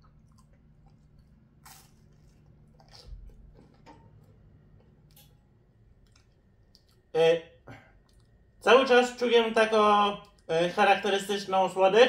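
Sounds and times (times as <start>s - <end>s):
person biting and chewing: 0.0s - 4.2s.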